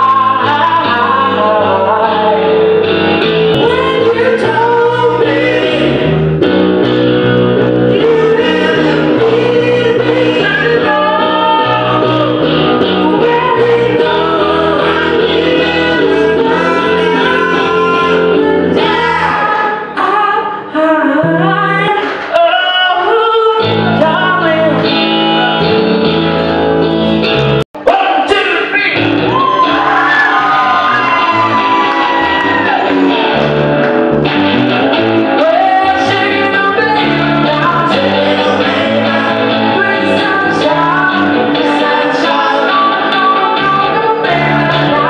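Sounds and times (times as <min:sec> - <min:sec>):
bass guitar: 0:00.0 - 0:27.9, 0:28.8 - 0:45.0
electric guitar: 0:00.0 - 0:27.9, 0:28.8 - 0:45.0
two men singing together: 0:03.6 - 0:06.2, 0:07.9 - 0:19.7, 0:35.4 - 0:45.0.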